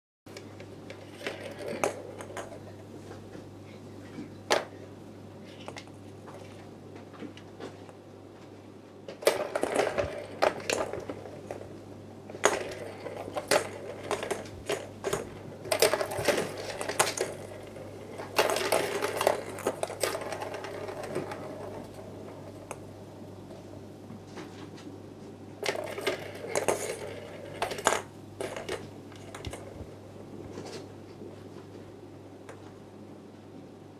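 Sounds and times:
plastic balls rattling in tracks: 0.8 - 2.7, 9.2 - 22.9, 25.6 - 29.9.

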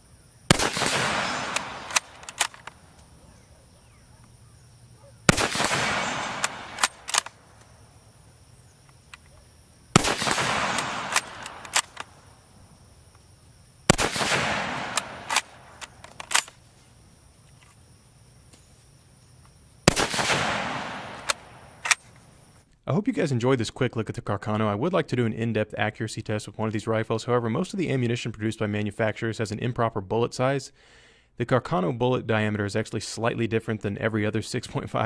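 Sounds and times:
rifle shots echoing: 0.5 - 2.9, 5.1 - 7.5, 9.9 - 12.2, 13.8 - 16.5, 19.8 - 22.2
rifle bolt clicks: 0.6 - 3.1, 5.4 - 7.4, 10.0 - 12.1, 14.0 - 16.6, 21.0 - 22.2.

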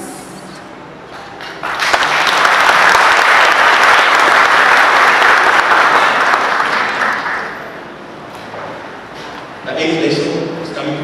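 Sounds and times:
congregation applauding: 1.2 - 7.9.

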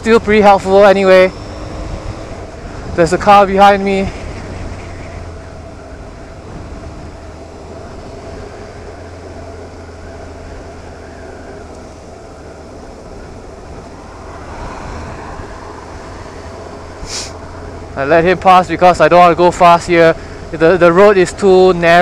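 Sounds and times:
car overtaking: 0.0 - 22.0
road and wind noise: 0.0 - 22.0.

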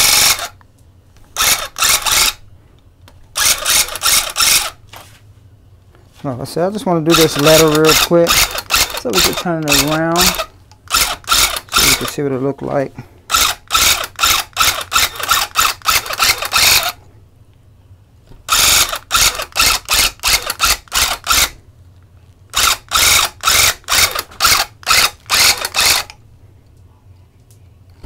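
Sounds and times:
electric tufting gun pulsing: 7.1 - 12.1, 13.3 - 17.0, 22.5 - 26.2.

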